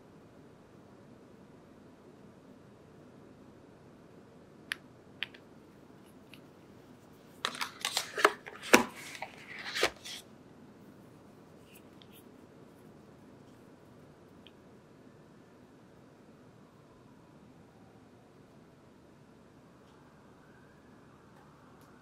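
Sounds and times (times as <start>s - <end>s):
plastic bottles clicking and rattling: 7.4s - 10.2s.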